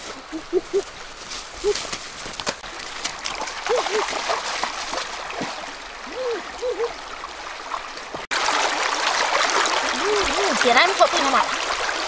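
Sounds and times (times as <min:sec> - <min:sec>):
river water rushing and splashing: 0:00.0 - 0:12.0.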